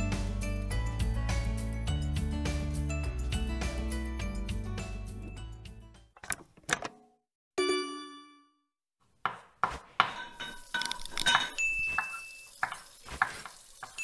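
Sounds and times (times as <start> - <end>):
clinks and chimes: 10.2 - 12.8.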